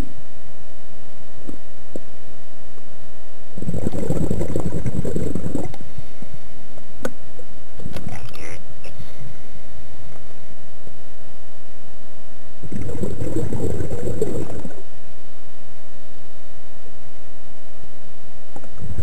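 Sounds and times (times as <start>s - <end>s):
air bubbling from regulator: 3.5s - 6.2s, 12.6s - 15.0s, 18.6s - 19.0s.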